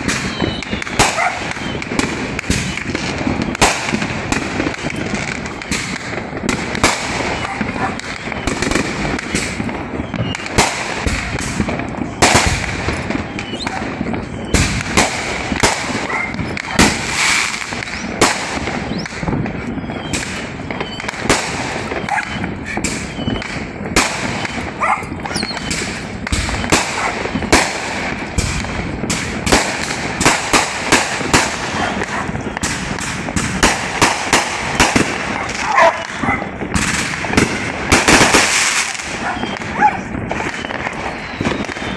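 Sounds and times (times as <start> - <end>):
fireworks bangs and pops: 0.0 - 41.9
fireworks crackle: 0.0 - 41.9.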